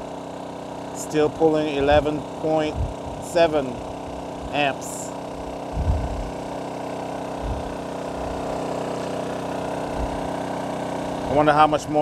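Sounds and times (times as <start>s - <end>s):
generator running: 0.0s - 12.0s
soft low bumps: 5.8s - 6.3s.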